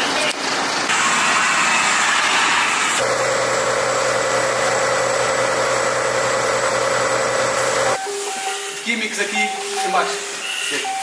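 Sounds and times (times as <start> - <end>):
engine idling: 3.0 - 8.0.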